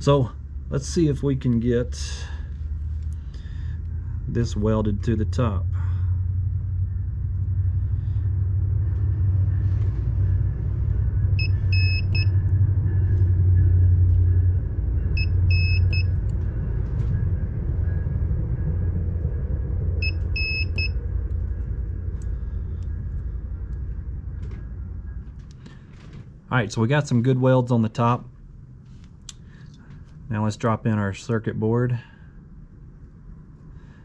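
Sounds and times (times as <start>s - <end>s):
loud steady low hum: 0.0s - 34.0s
spot welder high beeps: 11.4s - 12.4s, 15.2s - 16.1s, 20.0s - 20.9s.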